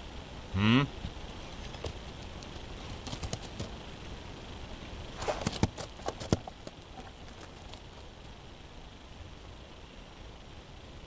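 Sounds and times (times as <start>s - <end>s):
puppy footsteps on snow: 5.2s - 8.0s.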